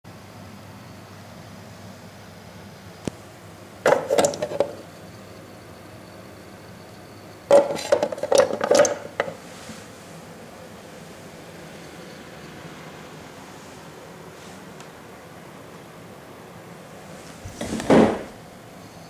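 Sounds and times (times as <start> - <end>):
small hard objects clattering: 3.9 - 4.8, 7.5 - 9.4.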